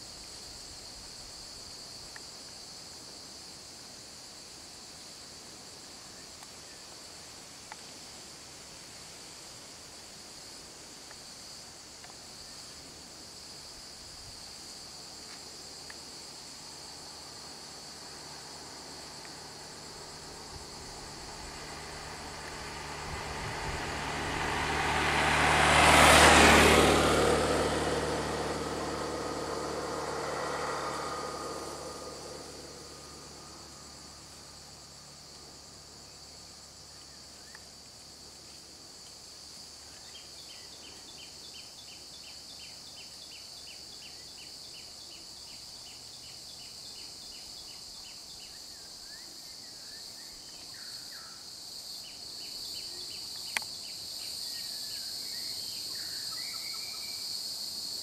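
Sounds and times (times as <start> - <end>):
high buzz of insects: 0.0 - 58.0
vehicle passing by: 16.3 - 35.8.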